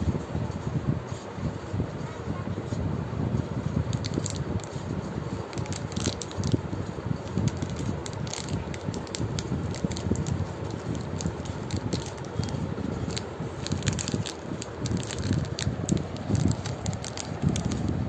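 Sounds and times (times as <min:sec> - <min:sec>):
low background rumble: 0:00.0 - 0:18.0
plastic wrappers crinkling: 0:03.9 - 0:04.8, 0:05.4 - 0:17.9.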